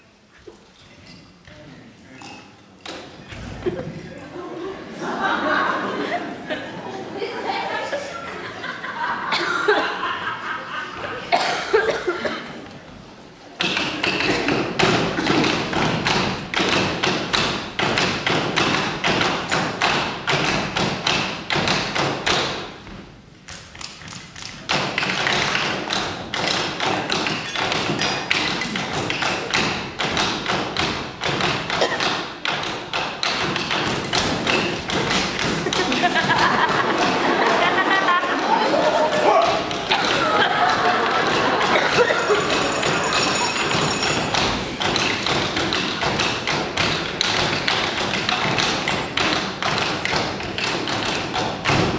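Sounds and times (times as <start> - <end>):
pens and hands tapping on table: 13.6 - 22.6, 23.5 - 37.8, 39.4 - 51.9.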